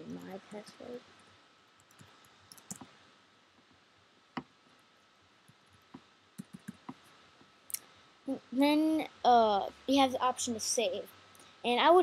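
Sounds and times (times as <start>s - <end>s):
computer keyboard typing: 1.8s - 2.9s, 6.4s - 7.0s.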